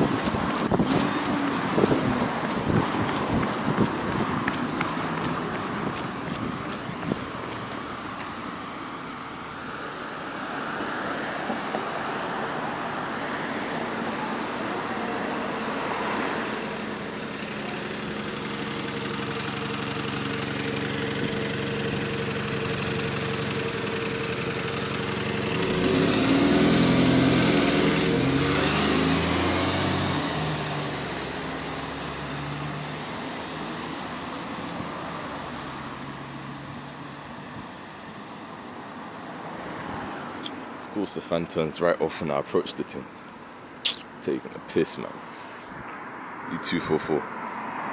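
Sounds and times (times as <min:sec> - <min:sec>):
bus pulling away: 0:00.0 - 0:09.4, 0:12.1 - 0:38.8
bus engine idling: 0:00.0 - 0:09.7, 0:14.0 - 0:25.6.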